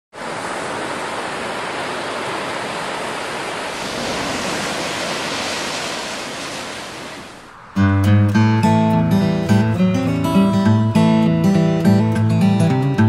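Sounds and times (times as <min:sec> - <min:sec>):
ocean surf breaking on beach: 0:00.1 - 0:08.0.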